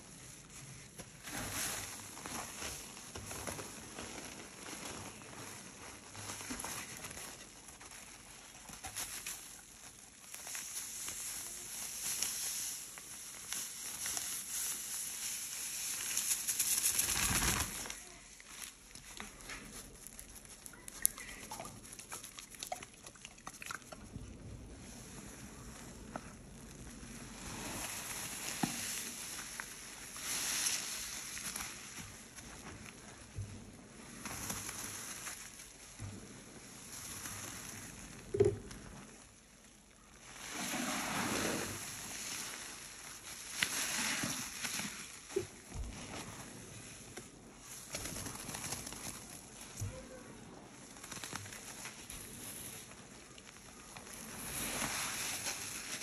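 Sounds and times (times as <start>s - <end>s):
powder pouring hiss: 9.3s - 18.2s, 24.7s - 32.2s, 40.2s - 46.5s, 54.0s - 56.0s
hand squishing wet paste: 18.4s - 33.1s.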